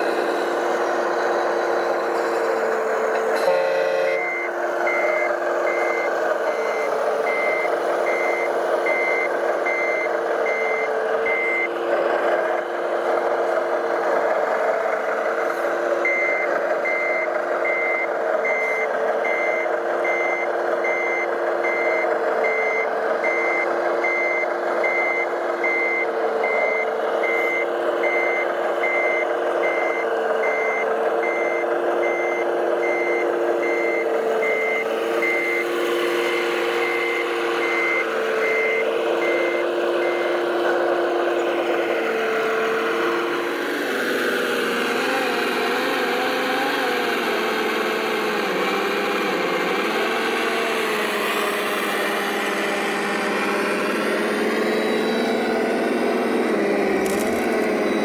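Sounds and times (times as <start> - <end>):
reversing alarm beeping: 0.0 - 12.2, 16.0 - 46.4, 47.0 - 58.0
whine of model motors and gears: 17.6 - 58.0.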